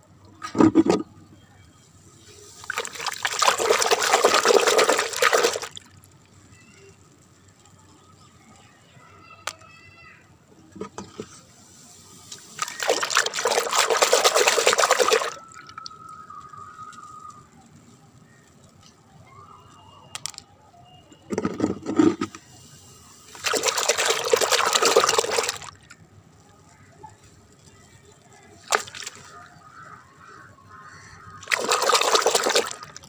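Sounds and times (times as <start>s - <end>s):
water sloshing in a plastic bucket: 2.6s - 6.0s, 12.3s - 16.1s, 23.3s - 26.1s, 28.4s - 29.9s, 31.4s - 33.0s.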